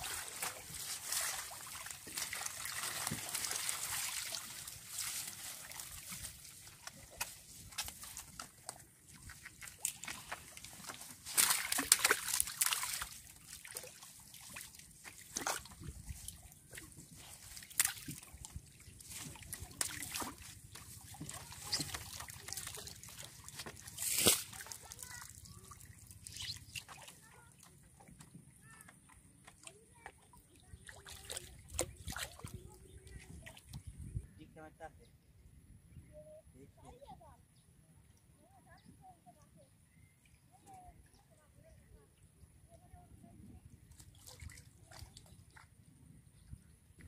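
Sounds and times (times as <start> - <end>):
splashing from net: 0.0 - 8.5, 9.2 - 27.2, 43.9 - 45.6.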